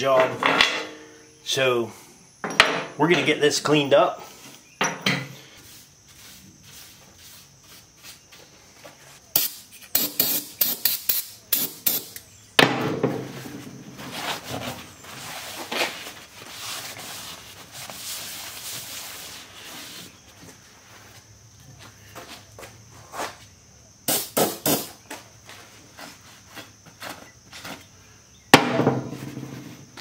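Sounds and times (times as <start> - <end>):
towel wiping steel floor: 5.6 - 8.4, 13.6 - 20.2.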